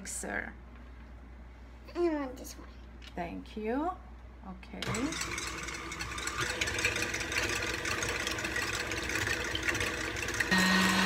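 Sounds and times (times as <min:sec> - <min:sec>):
stand mixer beating eggs: 0:04.8 - 0:11.0.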